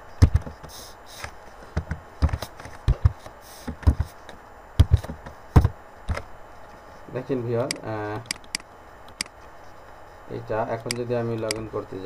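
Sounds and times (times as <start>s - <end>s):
keyboard typing: 10.8s - 11.7s.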